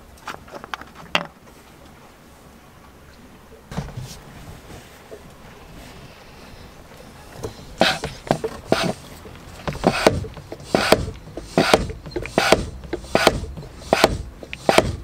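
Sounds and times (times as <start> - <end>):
hand pump strokes: 7.8 - 15.0.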